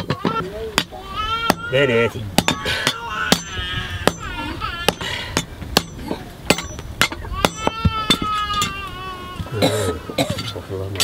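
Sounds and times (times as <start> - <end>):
hammer striking metal on anvil: 4.9 - 8.7.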